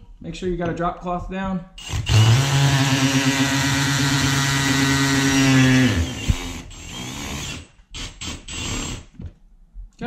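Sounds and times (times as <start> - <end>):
cordless drill motor running: 1.8 - 9.1.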